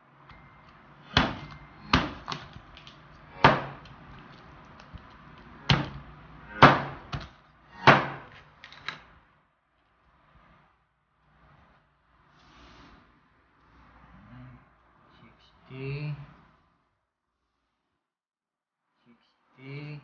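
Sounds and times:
cleaver chopping on cutting board: 3.4s - 3.8s.

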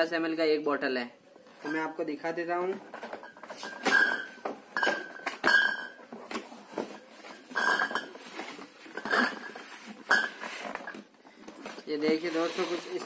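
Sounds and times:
glass bottles clinking: 3.0s - 6.2s, 7.2s - 11.1s.

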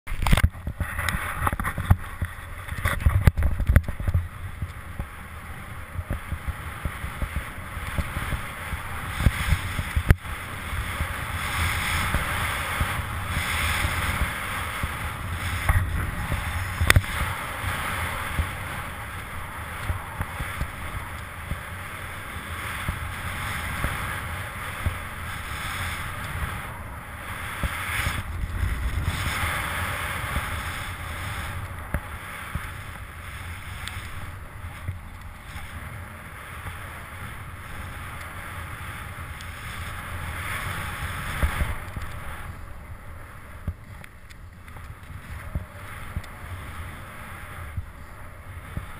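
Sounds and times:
wind buffeting microphone: 0.1s - 48.9s
snowboard hissing through snow: 6.4s - 43.4s.

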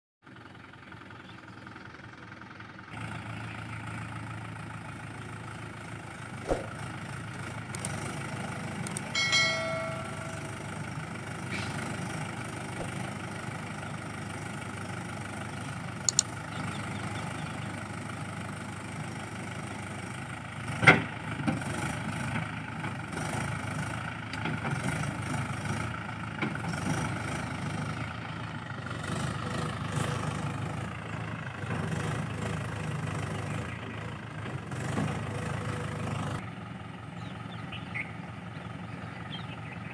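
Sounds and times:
engine idling: 0.2s - 39.9s
sharp clicks and knock: 8.8s - 9.1s, 16.0s - 16.3s
short pitched tone: 9.2s - 10.7s.

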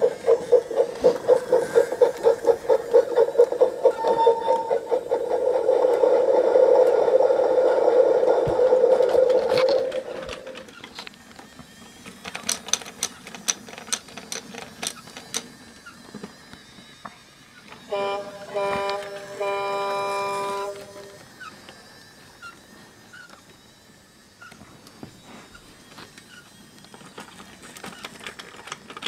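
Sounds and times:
toy train motor whirring: 0.0s - 29.0s.

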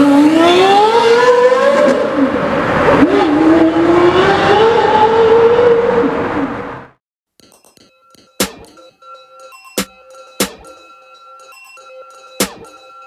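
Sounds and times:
car engine at full throttle: 0.0s - 7.0s.

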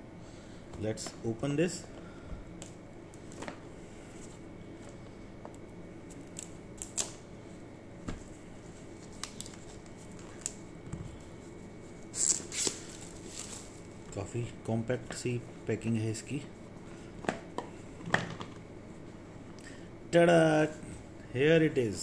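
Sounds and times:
plastic wrap crinkling: 8.9s - 10.6s.

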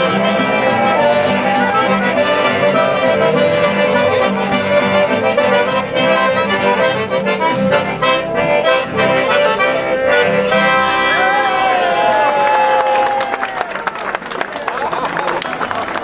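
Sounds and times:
acoustic guitars strumming: 0.0s - 11.6s
accordions playing a tune: 0.0s - 12.2s.

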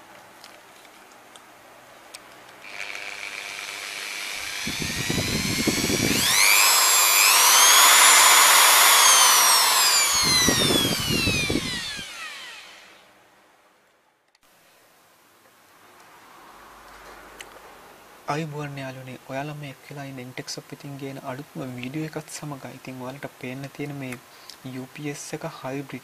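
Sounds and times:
electric drill motor whine: 2.6s - 13.1s.

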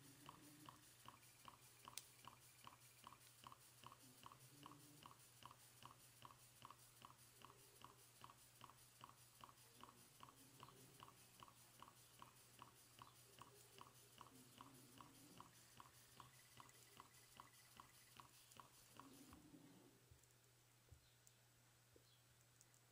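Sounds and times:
steam engine exhaust puffs: 0.0s - 19.4s
low steady hum: 0.0s - 22.9s.

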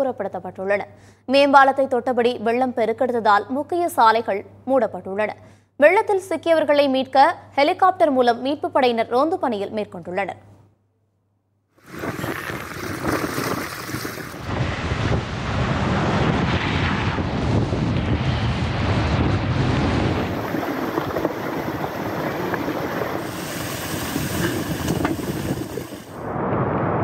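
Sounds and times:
rushing river water: 11.8s - 14.5s, 20.4s - 26.2s
wind buffeting microphone: 11.8s - 27.0s.

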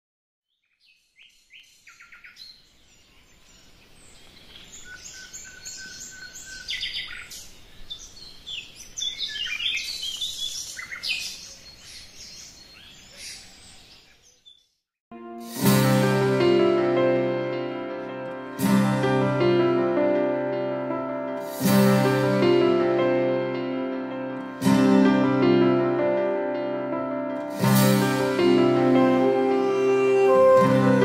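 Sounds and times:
birds chirping and singing: 0.8s - 14.7s.

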